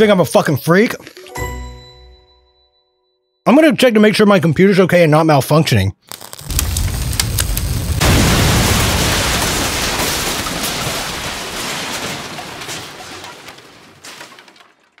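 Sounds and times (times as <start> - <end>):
explosion blast: 6.5 - 12.6.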